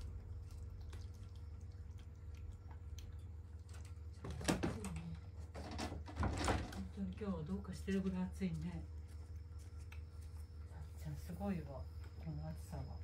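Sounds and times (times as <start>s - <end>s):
faint water drips: 0.0s - 4.2s.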